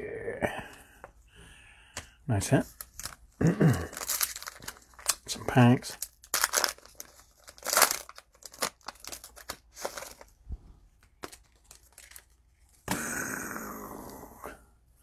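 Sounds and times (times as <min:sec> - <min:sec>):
wrapper rustle: 0:02.6 - 0:03.3, 0:03.9 - 0:10.4, 0:11.2 - 0:12.4
cellophane wrapper crinkling: 0:02.6 - 0:10.4, 0:11.0 - 0:12.4.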